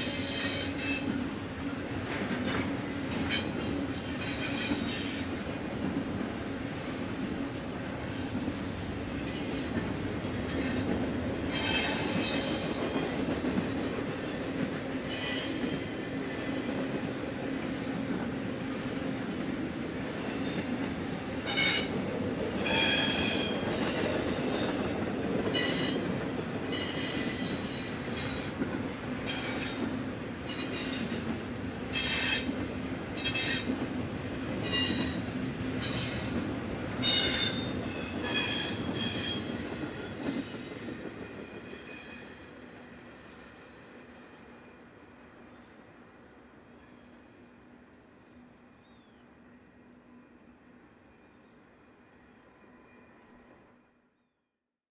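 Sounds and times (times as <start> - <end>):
train wheels squealing: 0.0 - 1.2, 2.4 - 5.9, 8.1 - 16.6, 21.5 - 33.8, 34.6 - 36.4, 37.0 - 43.8, 45.4 - 47.6
freight train rumbling past: 0.0 - 54.0.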